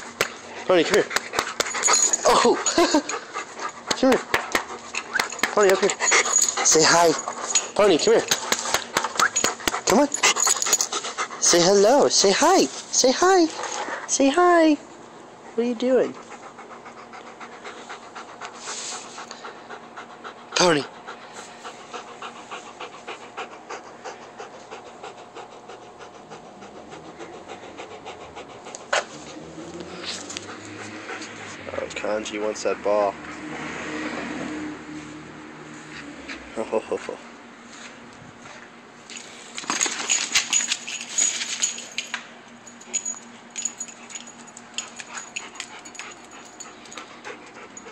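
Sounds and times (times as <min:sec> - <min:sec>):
dog panting: 0:00.2 - 0:14.2, 0:15.4 - 0:32.0, 0:42.9 - 0:47.9.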